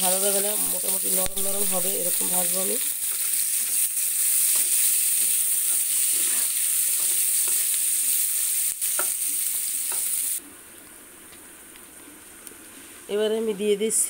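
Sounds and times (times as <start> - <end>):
onions sizzling in oil: 0.0 - 14.0
spatula scraping pan: 3.0 - 7.7.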